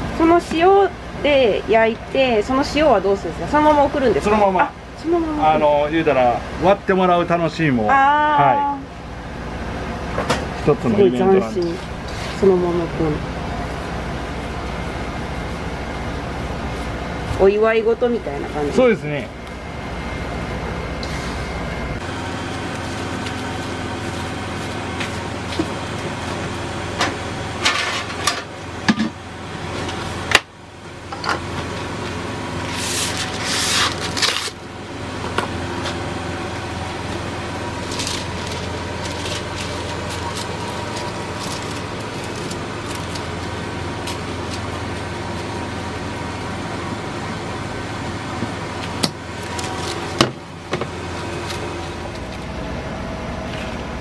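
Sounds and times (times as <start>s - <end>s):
steady machine hum: 0.0s - 54.0s
cling film and paper crinkling: 22.4s - 25.8s, 32.6s - 34.6s, 37.0s - 45.6s, 48.8s - 50.2s.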